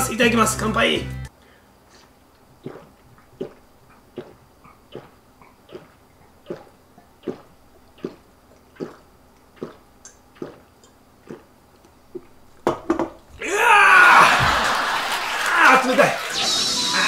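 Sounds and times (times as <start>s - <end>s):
person gulping a drink: 2.4s - 12.6s.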